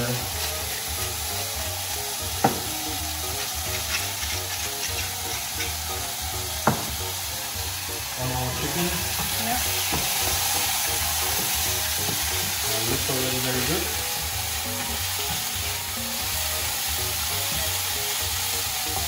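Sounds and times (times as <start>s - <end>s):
chicken sizzling in pan: 0.0s - 19.0s.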